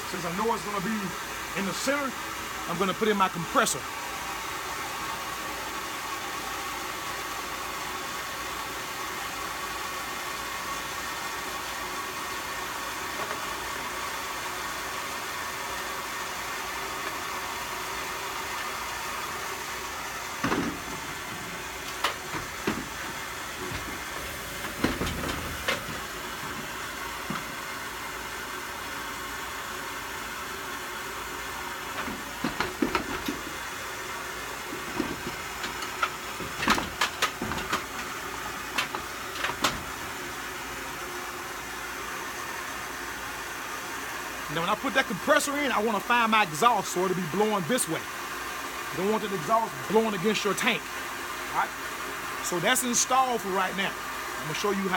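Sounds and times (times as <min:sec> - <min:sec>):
air compressor clunking on wooden floor: 0:20.4 - 0:27.6, 0:31.9 - 0:33.6, 0:34.6 - 0:40.0.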